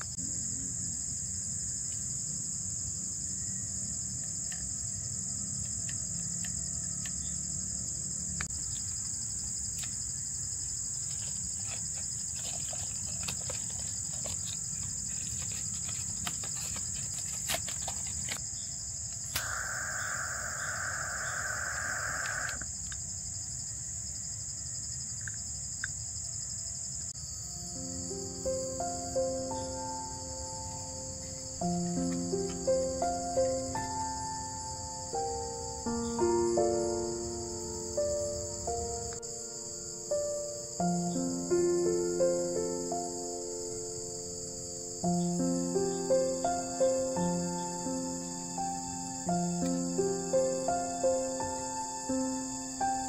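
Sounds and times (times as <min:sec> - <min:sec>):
chorus of crickets and insects: 0:00.0 - 0:53.0
faint clicks: 0:19.1 - 0:23.0
low buzzing: 0:19.4 - 0:22.6.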